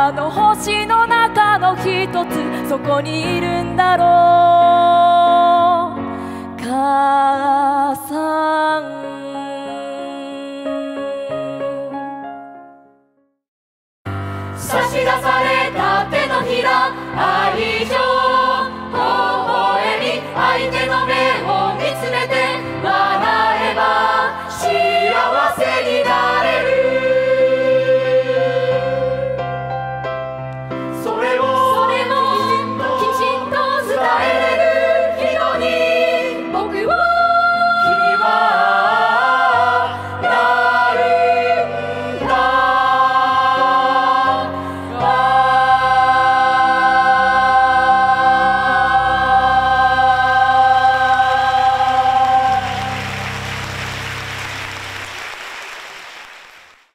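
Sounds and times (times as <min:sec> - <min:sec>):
young chorus singing: 0:14.6 - 0:29.4, 0:31.0 - 0:53.0.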